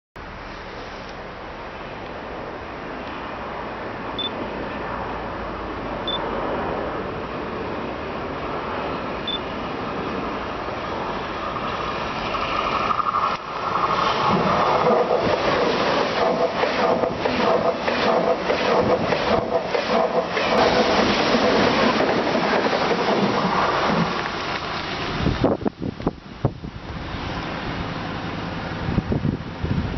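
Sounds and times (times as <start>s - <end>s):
high-speed train passing: 0.2s - 29.9s
wheels clacking over track: 11.6s - 25.2s.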